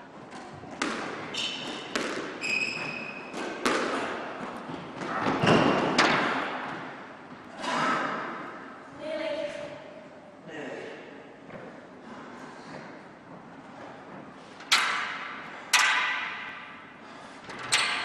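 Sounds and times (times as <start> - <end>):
squash ball thuds: 0.6 - 6.9
shoes squeaking on wooden floor: 1.3 - 3.6.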